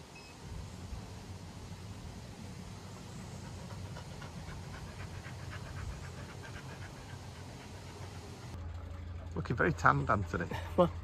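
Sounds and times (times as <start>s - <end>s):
low steady hum: 0.0s - 11.0s
dog panting quickly: 2.8s - 8.6s.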